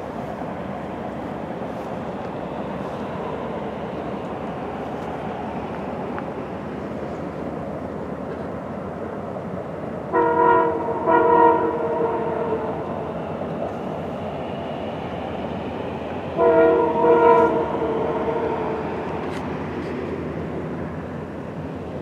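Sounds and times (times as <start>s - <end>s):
passing train rumble: 0.0s - 22.0s
locomotive air horn blasts: 10.1s - 12.8s, 16.4s - 18.6s.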